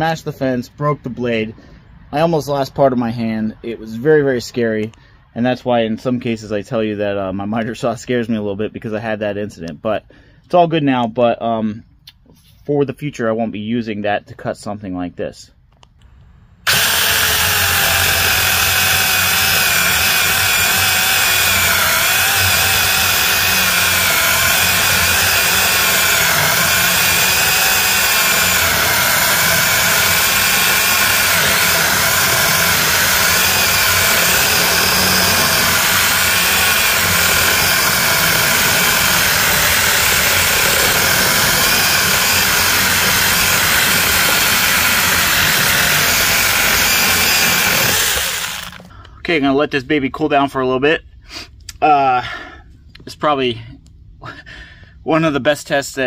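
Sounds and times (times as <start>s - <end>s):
electric chainsaw cutting log: 16.6s - 48.9s.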